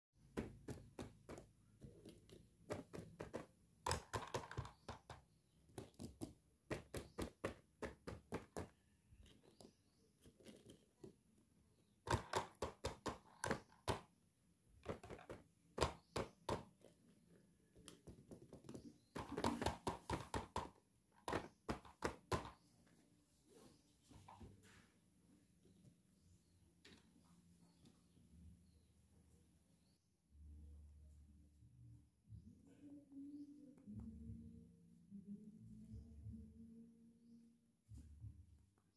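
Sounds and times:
plastic toys clicking and knocking: 0:00.3 - 0:11.2, 0:12.0 - 0:14.2, 0:14.8 - 0:17.0, 0:17.8 - 0:22.6.

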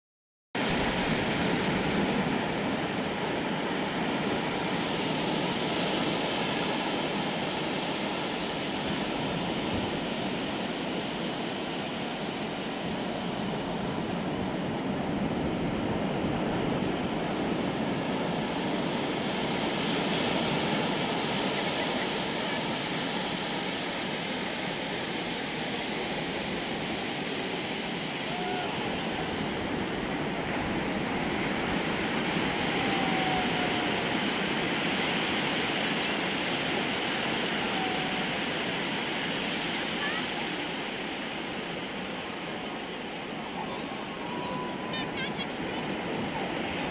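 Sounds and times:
waves breaking on beach: 0:00.6 - 0:46.9.

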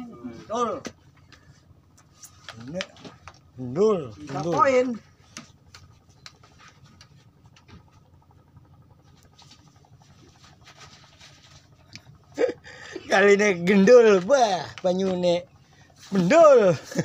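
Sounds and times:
faint low rumble: 0:00.0 - 0:17.0
light scattered ticks and patter: 0:01.2 - 0:03.6, 0:13.2 - 0:15.4.

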